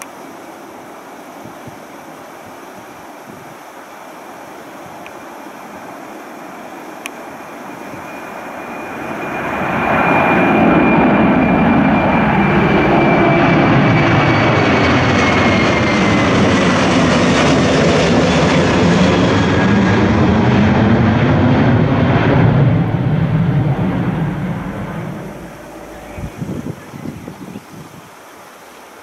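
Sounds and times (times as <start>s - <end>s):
jet engines at takeoff power: 4.4s - 26.5s.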